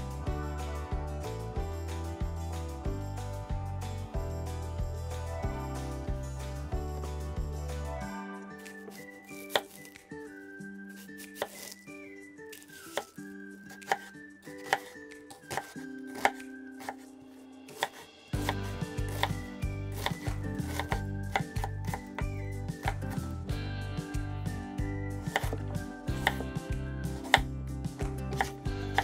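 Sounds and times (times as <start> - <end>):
background music with a beat: 0.0 - 29.0
knife chopping on cutting board: 8.6 - 10.0, 11.0 - 11.8, 12.5 - 13.1, 13.7 - 17.1, 17.7 - 23.3, 25.2 - 26.5, 27.1 - 29.0.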